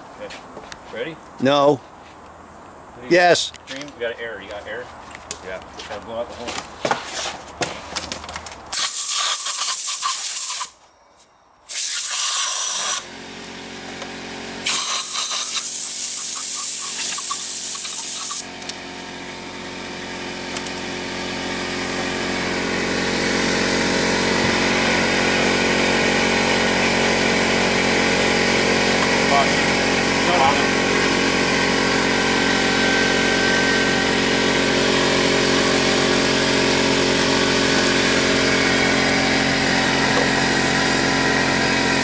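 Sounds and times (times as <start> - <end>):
air blow gun hissing: 8.7 - 10.8, 11.7 - 13.1, 14.6 - 18.5
air compressor motor humming: 11.7 - 42.0.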